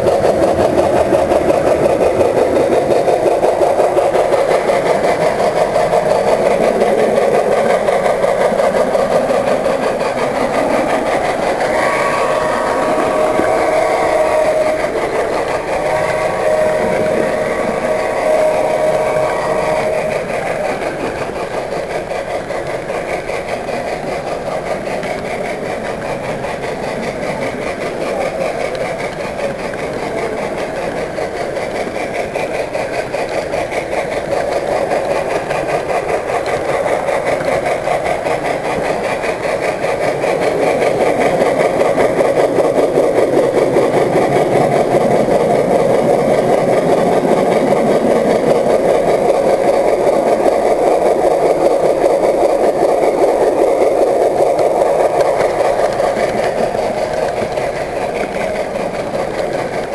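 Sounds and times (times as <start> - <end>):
model train motor whir: 0.0 - 59.9.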